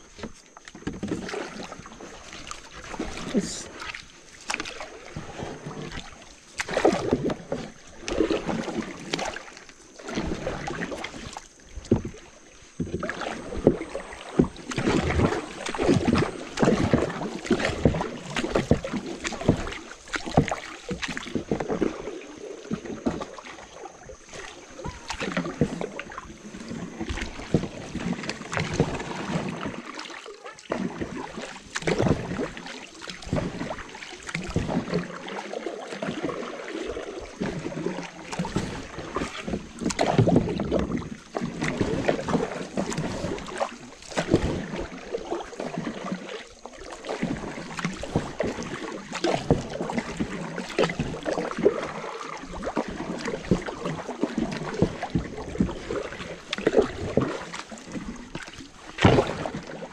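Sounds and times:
paddles dipping in water: 0:00.0 - 0:59.9
water splashes and knocks: 0:00.0 - 0:59.9.

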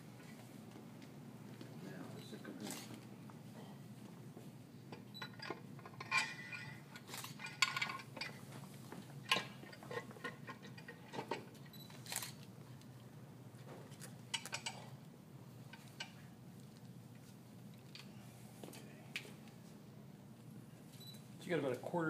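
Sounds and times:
metal parts clinking and knocking: 0:05.2 - 0:08.4, 0:09.2 - 0:12.4.

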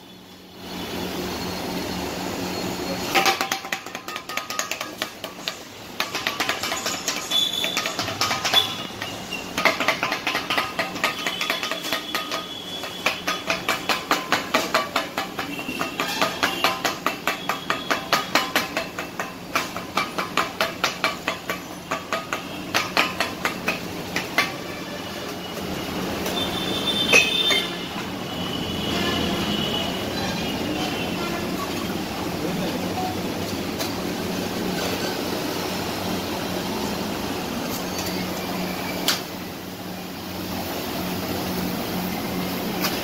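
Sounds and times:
metal spatulas clanging on griddle: 0:03.1 - 0:25.0.

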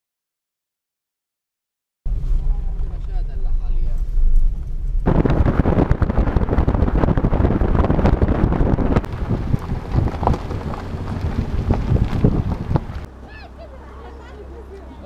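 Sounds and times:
wind buffeting microphone: 0:02.1 - 0:13.1
tyres rolling over gravel: 0:05.1 - 0:15.0.

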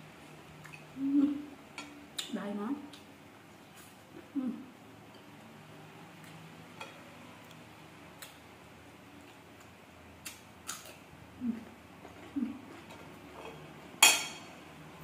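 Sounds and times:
person chewing food: 0:09.2 - 0:12.9.

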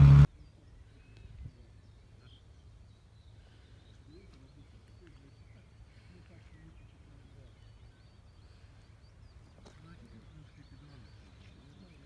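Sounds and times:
low steady rumble: 0:00.0 - 0:03.8
distant bird chirps: 0:00.0 - 0:12.0.

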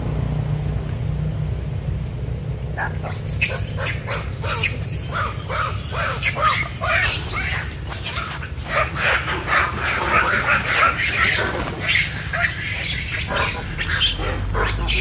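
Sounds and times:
steady low rumble: 0:00.0 - 0:15.0
monkeys squealing and chattering: 0:02.7 - 0:15.0.

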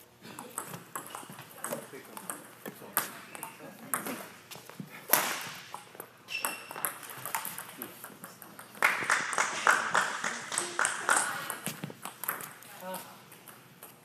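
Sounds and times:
shoe squeak: 0:06.2 - 0:06.9.

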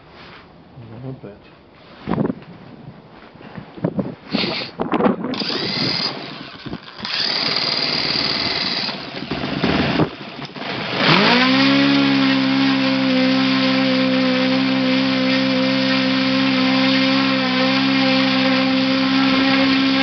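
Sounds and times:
electric starter whining: 0:05.3 - 0:20.0
model engine running: 0:05.3 - 0:20.0.

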